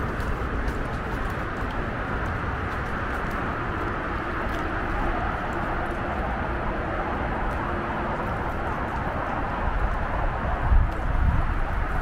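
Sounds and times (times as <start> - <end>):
wind buffeting microphone: 0.0 - 12.0.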